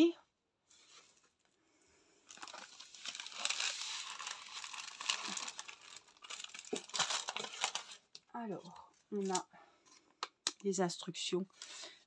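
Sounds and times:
canvas crinkling and rustling: 2.3s - 8.1s.

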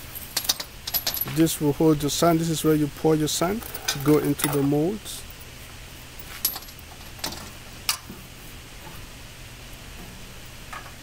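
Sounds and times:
metallic clinks of bolts: 0.3s - 1.4s.

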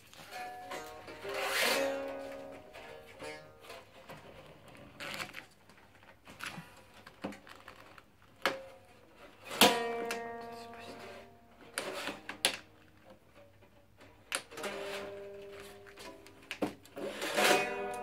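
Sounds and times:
clicks and taps handling strings: 0.0s - 18.0s
koto strings twanging: 9.5s - 12.6s, 17.0s - 18.0s.

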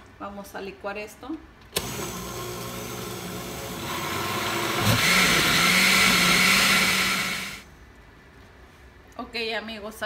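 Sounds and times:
blender blending liquid: 1.8s - 7.6s.

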